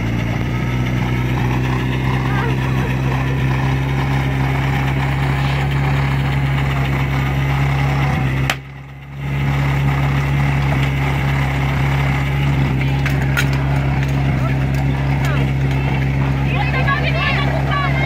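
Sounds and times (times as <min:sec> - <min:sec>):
pump engine idling: 0:00.0 - 0:18.0
sharp crack: 0:08.4 - 0:08.8.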